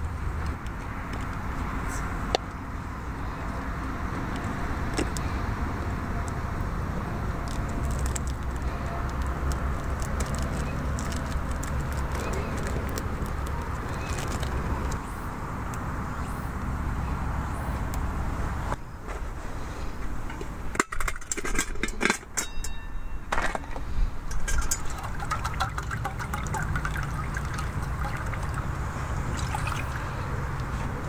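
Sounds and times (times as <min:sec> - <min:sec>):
metal pot and lid clanking: 0:20.7 - 0:23.7, 0:24.3 - 0:26.8
water pouring into pot: 0:24.5 - 0:28.7, 0:29.3 - 0:30.1.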